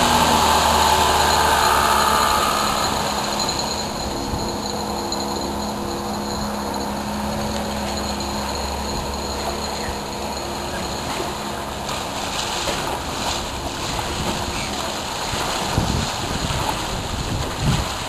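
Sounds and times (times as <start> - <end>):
motorboat engine humming: 0.0 - 18.0
wind and water noise: 0.0 - 18.0
wind gusts on microphone: 13.5 - 18.0.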